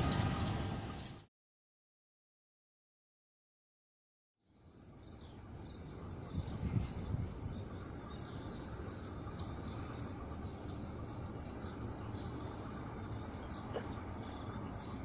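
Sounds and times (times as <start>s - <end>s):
high-pitched insect trill: 4.4s - 15.0s.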